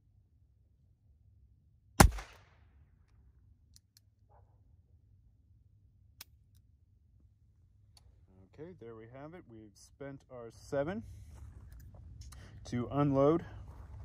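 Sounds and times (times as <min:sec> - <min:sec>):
revolver gunshot with echo: 0:02.0 - 0:02.6.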